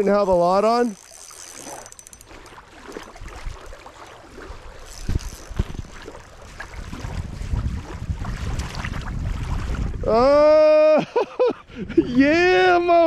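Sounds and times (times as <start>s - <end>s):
small waves lapping on shore: 0.0s - 10.6s
wind rumbling on microphone: 2.3s - 11.0s, 11.6s - 13.0s.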